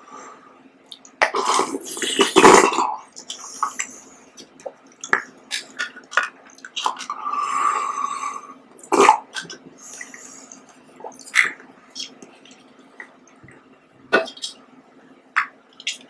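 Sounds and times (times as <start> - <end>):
wet mouth sounds: 0.8 - 7.2, 8.8 - 14.6, 15.4 - 16.0
person slurping jelly: 1.2 - 4.0.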